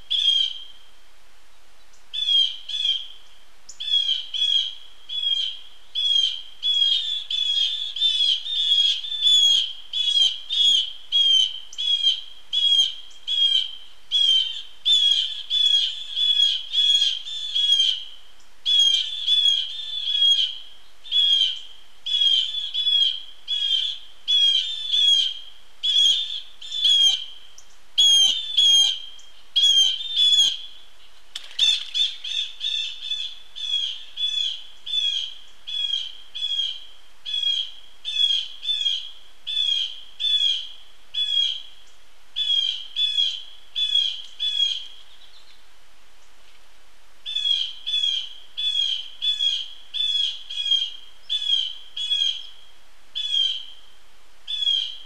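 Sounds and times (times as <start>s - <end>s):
birds giving harsh alarm calls: 18.7s - 27.4s, 28.0s - 30.7s, 31.4s - 40.6s.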